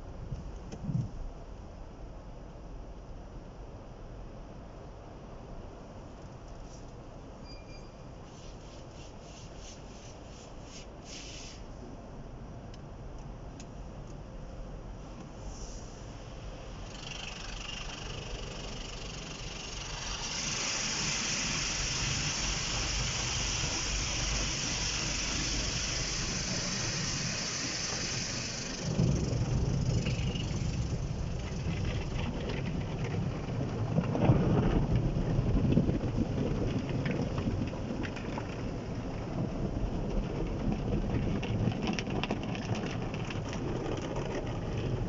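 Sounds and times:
water jets hissing on car: 8.2 - 11.8, 15.0 - 33.1
foam rushing over glass: 15.6 - 33.6.

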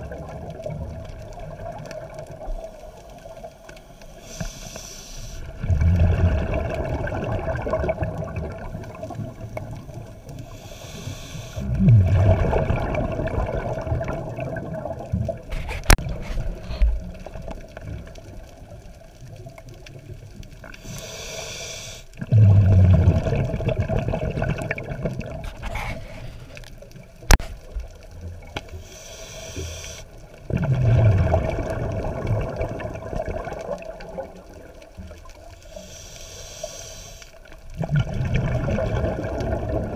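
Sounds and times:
exhaled bubbles rushing: 0.0 - 3.4, 5.4 - 10.5, 11.6 - 20.5, 22.2 - 26.2, 30.4 - 35.6, 37.6 - 39.9
regulator inhale hiss: 3.6 - 5.6, 10.3 - 11.7, 20.6 - 22.2, 25.5 - 26.7, 28.6 - 30.3, 35.6 - 37.6.

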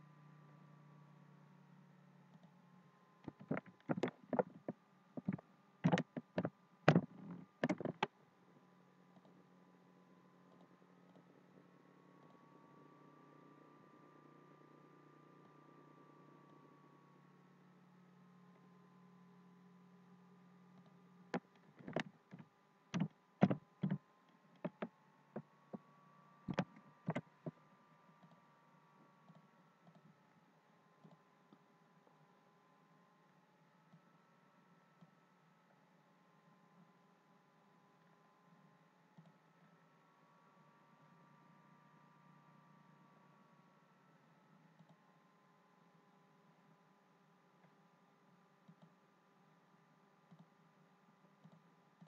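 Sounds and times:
faint steady hum: 0.0 - 52.0
keyboard typing: 5.2 - 8.1, 23.0 - 24.0, 26.5 - 27.2.

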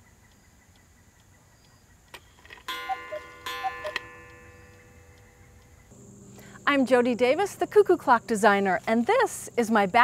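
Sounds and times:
cuckoo clock call: 0.0 - 6.0
clock ticking: 0.3 - 5.9.

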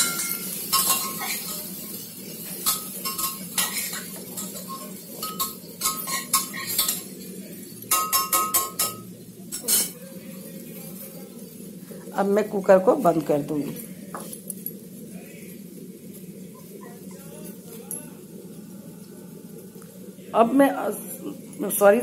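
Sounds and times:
spatula scraping and clinking on pots: 0.0 - 10.0.

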